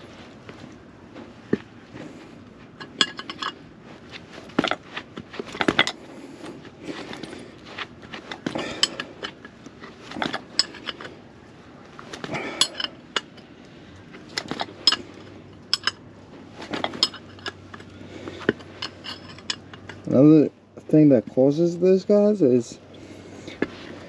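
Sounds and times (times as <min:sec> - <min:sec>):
metal tools clinking: 0:02.8 - 0:03.6, 0:04.4 - 0:06.1, 0:06.9 - 0:11.2, 0:12.2 - 0:13.5, 0:14.2 - 0:20.2.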